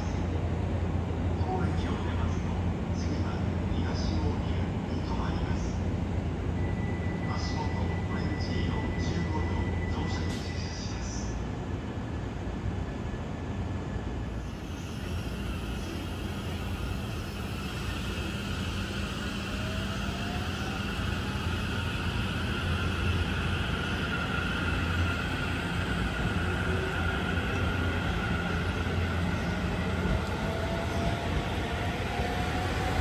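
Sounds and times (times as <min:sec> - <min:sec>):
electric train rumbling: 0:00.0 - 0:33.0.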